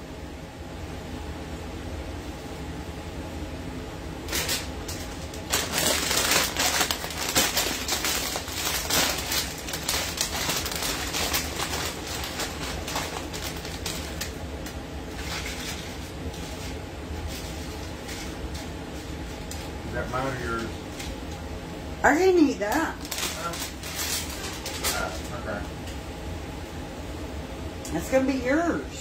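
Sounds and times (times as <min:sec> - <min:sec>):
steady low hum: 0:00.0 - 0:29.0
plastic bag crinkling: 0:04.3 - 0:18.4, 0:22.7 - 0:25.5.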